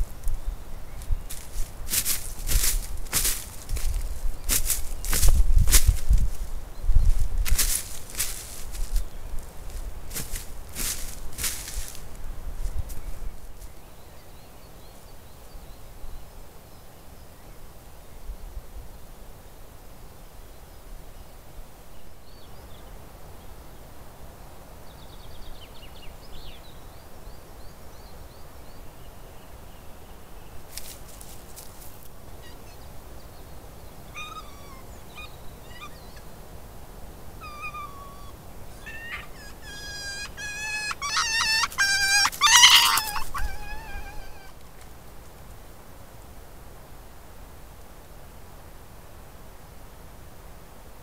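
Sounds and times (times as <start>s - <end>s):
animal chirping and chattering: 34.1s - 36.3s, 37.4s - 44.6s.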